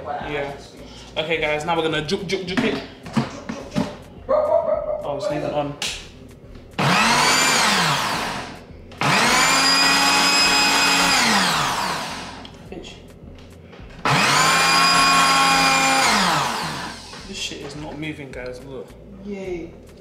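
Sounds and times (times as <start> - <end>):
blender motor whine: 6.8 - 12.5, 14.0 - 17.2.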